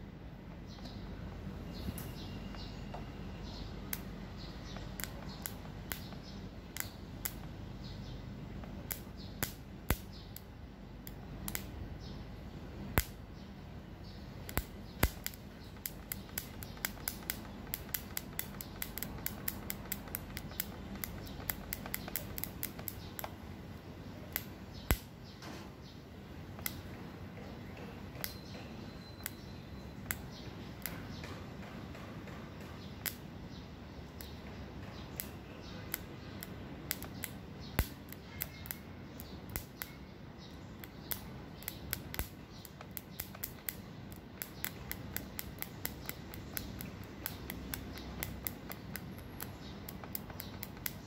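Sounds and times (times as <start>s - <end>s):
faint steady hum: 0.0s - 51.0s
wire clicks and ticks: 3.8s - 7.6s, 8.6s - 11.8s, 12.9s - 13.2s, 14.4s - 23.4s, 24.2s - 25.1s, 26.5s - 27.0s, 27.7s - 29.4s, 30.0s - 33.3s, 34.1s - 51.0s.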